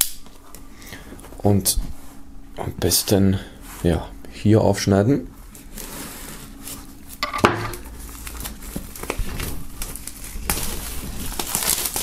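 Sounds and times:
plastic film crinkling: 5.5 - 12.0
knife slitting plastic wrap: 7.7 - 12.0.

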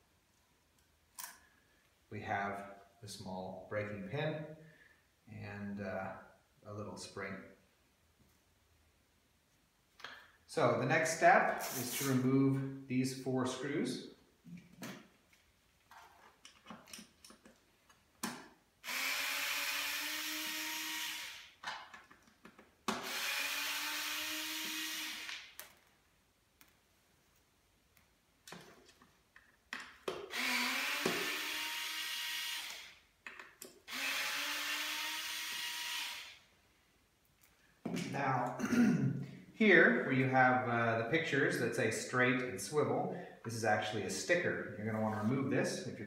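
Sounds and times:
cordless drill running: 18.8 - 21.5, 23.0 - 25.4, 30.3 - 33.0, 33.9 - 36.4.

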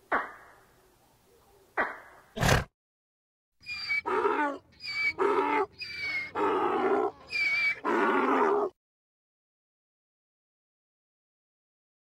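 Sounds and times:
donkey braying: 3.6 - 8.8.

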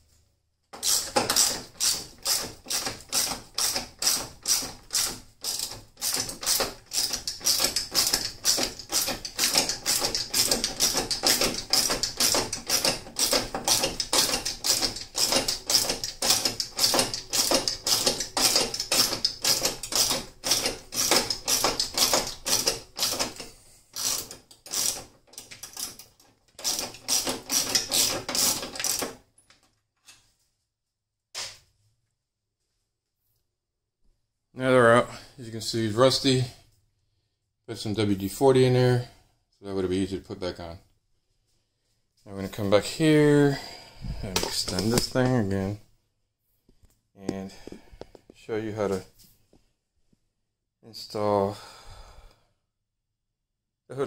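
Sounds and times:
socket ratchet clicking: 0.8 - 29.1.

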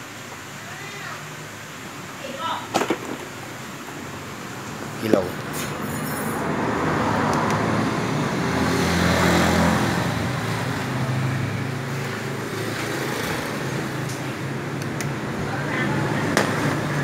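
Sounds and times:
vehicle engine droning: 3.6 - 17.0.

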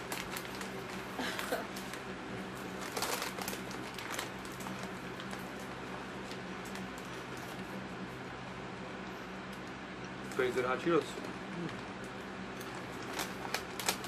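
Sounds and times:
snack bags crinkling: 0.0 - 7.6, 10.3 - 14.0.

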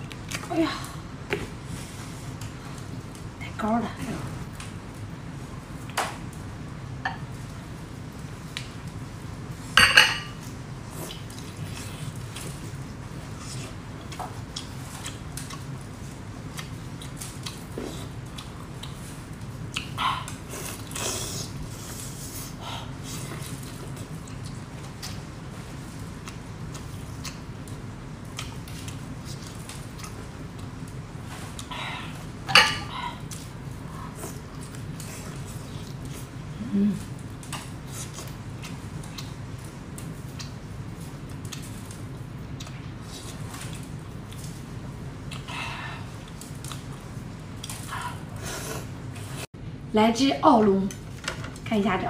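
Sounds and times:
low steady hum: 0.0 - 52.0
wet chewing clicks and smacks: 16.5 - 21.0, 26.1 - 31.7, 37.3 - 40.6, 41.3 - 42.9
chewing and wet mouth clicks: 26.2 - 27.4, 37.4 - 39.4, 40.0 - 40.6, 41.3 - 42.0, 42.6 - 42.9.

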